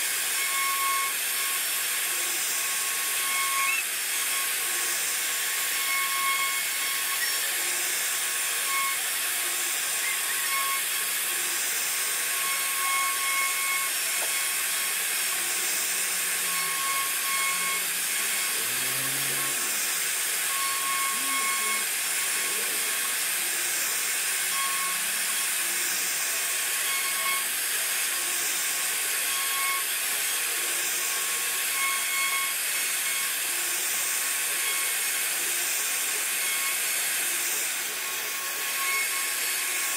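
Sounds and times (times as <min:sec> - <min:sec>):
router spindle carving wood: 0:00.0 - 0:39.9.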